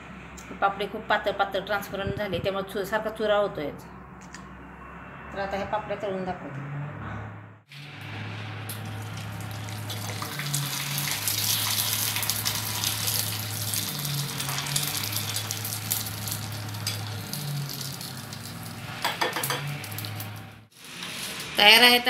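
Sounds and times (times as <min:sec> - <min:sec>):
papad sizzling in hot oil: 0:07.7 - 0:22.0.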